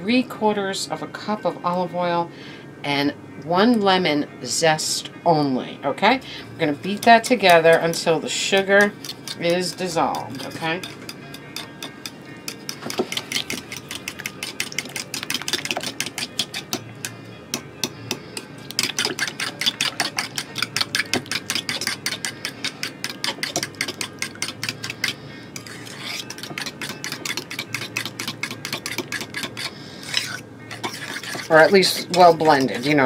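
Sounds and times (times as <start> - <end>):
fork tines clicking against bowl: 6.9 - 17.2, 17.8 - 33.0.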